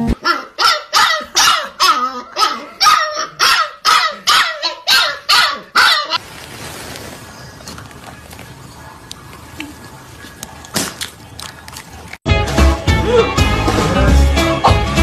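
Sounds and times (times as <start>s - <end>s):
puppy barking high yaps: 0.2s - 6.2s.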